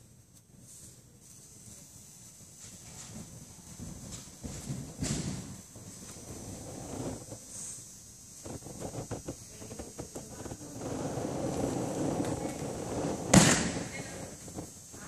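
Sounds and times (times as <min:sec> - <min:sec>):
landing thud on mat: 0:03.9 - 0:05.6, 0:13.2 - 0:14.3.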